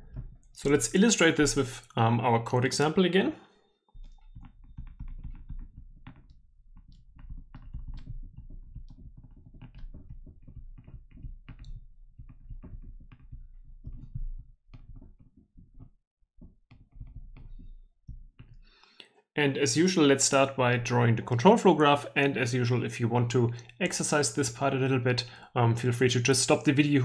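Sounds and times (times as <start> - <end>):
stylus tapping on tablet screen: 0.0 - 0.4, 4.0 - 18.8.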